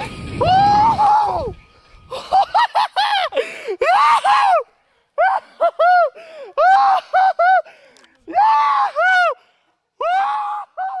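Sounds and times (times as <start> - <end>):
person squealing and whooping: 0.4 - 1.6.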